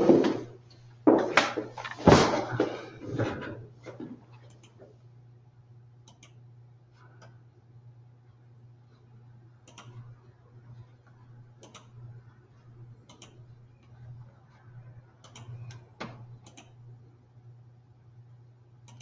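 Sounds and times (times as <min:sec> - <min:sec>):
steady low hum: 0:00.0 - 0:19.0
computer mouse clicks: 0:06.0 - 0:06.4, 0:09.6 - 0:10.1, 0:11.6 - 0:12.0, 0:13.0 - 0:14.0, 0:15.2 - 0:16.8.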